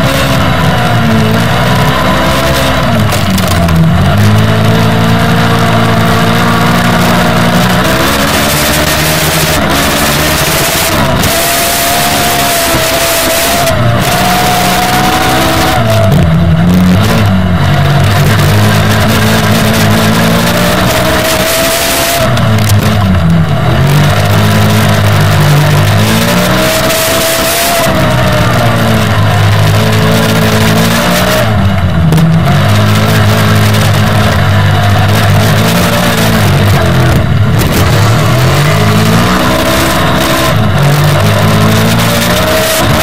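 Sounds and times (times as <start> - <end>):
constant rushing noise: 0.0 - 43.0
kart engine revving: 0.0 - 43.0.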